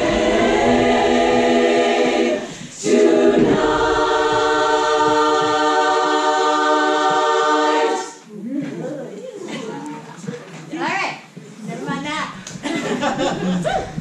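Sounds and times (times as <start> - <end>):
women's choir holding a chord: 0.0 - 8.2.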